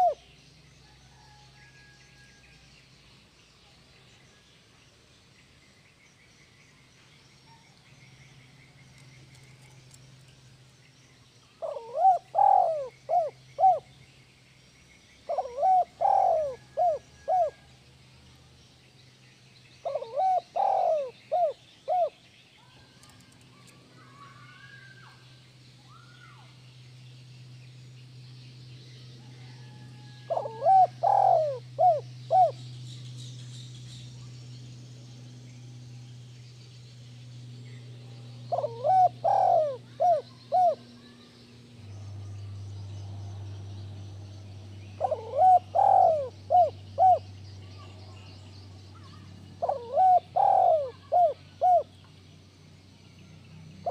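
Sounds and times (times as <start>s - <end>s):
dove cooing: 0.0s - 0.3s, 11.6s - 13.9s, 15.2s - 17.7s, 19.8s - 22.2s, 29.3s - 32.6s, 38.5s - 41.1s, 45.0s - 47.3s, 49.0s - 51.9s.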